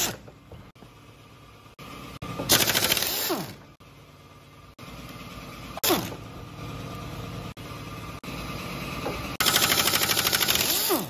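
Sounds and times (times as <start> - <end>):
pneumatic impact wrench whine: 0.0 - 0.4, 2.3 - 3.8, 5.6 - 6.3, 9.3 - 11.0
low mechanical hum: 0.0 - 11.0.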